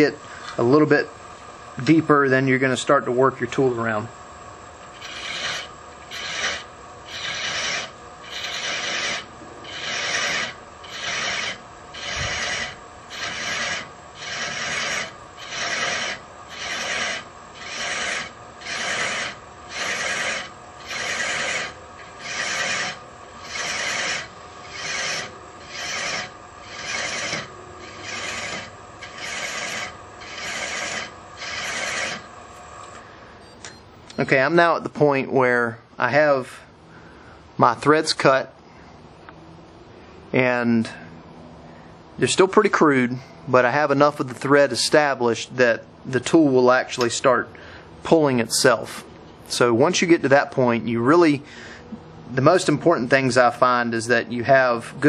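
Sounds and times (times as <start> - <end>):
thread chaser rasping on wood: 4.9 - 32.3
lathe running: 4.9 - 32.4.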